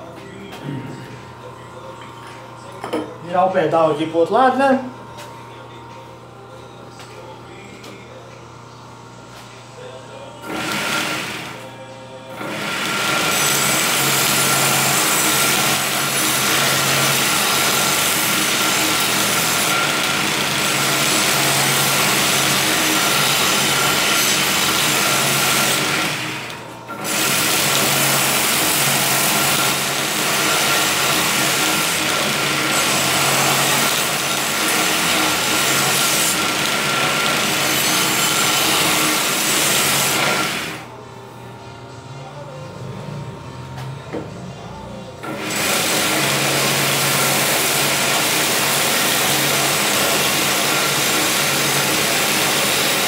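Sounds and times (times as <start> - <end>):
motor humming and whining: 0.0 - 53.0
belt sander grinding blade: 10.4 - 11.6, 12.4 - 40.9, 45.2 - 53.0.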